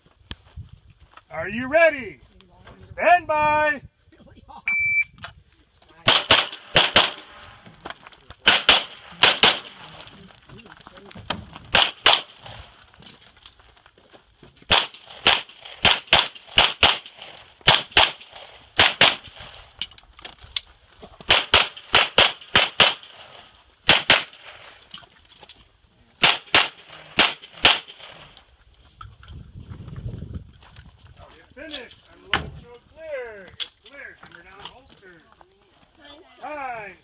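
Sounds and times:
pistol shots: 0:06.0 - 0:07.4, 0:08.4 - 0:10.0, 0:11.7 - 0:12.6, 0:14.7 - 0:19.5, 0:21.3 - 0:24.7, 0:26.2 - 0:28.2.

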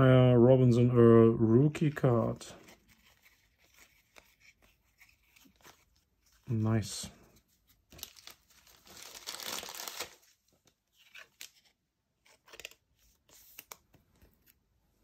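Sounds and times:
plastic sleeve crinkling: 0:07.8 - 0:10.4.

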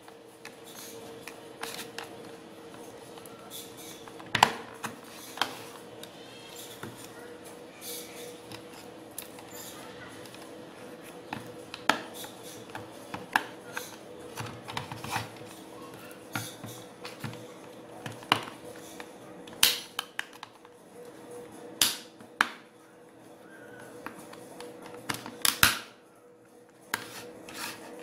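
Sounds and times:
faint steady hum: 0:00.0 - 0:28.0
plastic clips clicking and snapping: 0:18.0 - 0:20.7, 0:21.8 - 0:22.6, 0:24.0 - 0:25.9.

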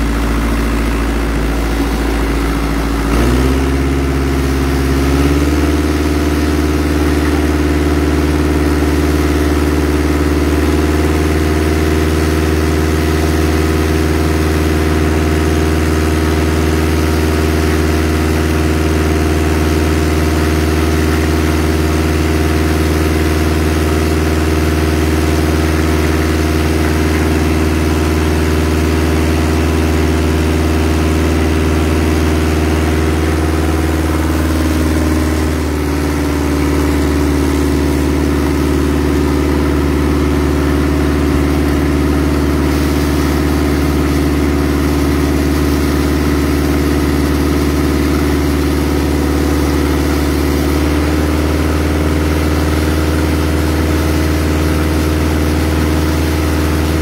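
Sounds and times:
engine running under load: 0:00.0 - 0:57.0
high-pressure water jet hissing: 0:20.1 - 0:57.0.

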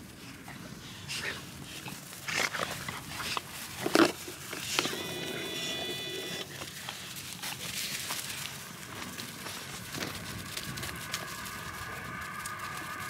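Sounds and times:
dogs growling: 0:00.0 - 0:13.0
high whine: 0:04.6 - 0:13.0.

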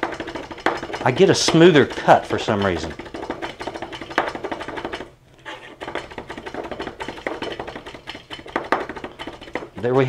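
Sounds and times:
knife mincing on cutting board: 0:00.0 - 0:09.8.

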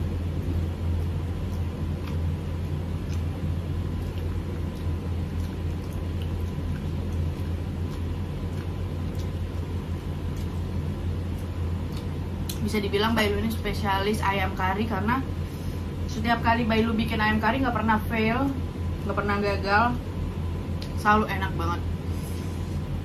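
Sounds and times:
low hum: 0:00.0 - 0:23.0
clicks and taps of eating: 0:01.4 - 0:10.7.

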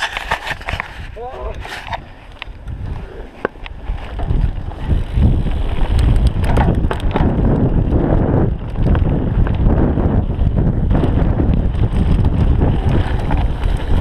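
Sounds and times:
bike clicks and knocks: 0:00.0 - 0:14.0
mountain bike rattling: 0:00.0 - 0:14.0
wind on microphone: 0:00.0 - 0:14.0.

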